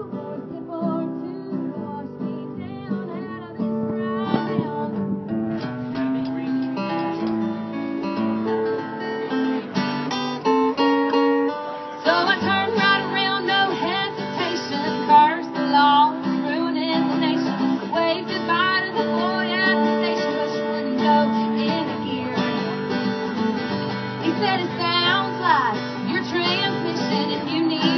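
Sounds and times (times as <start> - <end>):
person singing: 0.0 - 5.0, 12.0 - 23.0, 24.2 - 27.9
acoustic guitar: 0.0 - 27.9.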